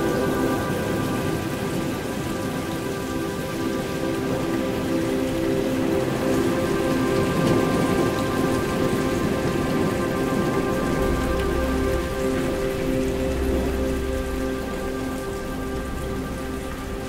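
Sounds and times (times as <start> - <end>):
rain hiss: 0.0 - 17.0
sustained synth pad chord: 0.0 - 17.0
low rumble: 10.4 - 17.0.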